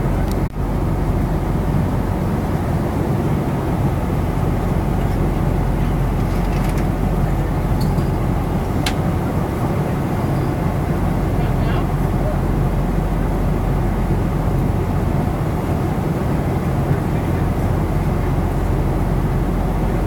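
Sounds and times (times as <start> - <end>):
airliner cabin engine roar: 0.0 - 20.0.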